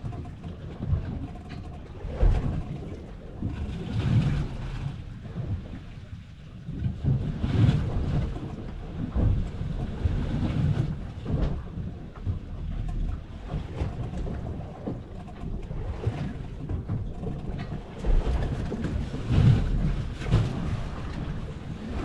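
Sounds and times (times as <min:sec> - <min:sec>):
choppy sea washing around boat: 0:00.0 - 0:22.0.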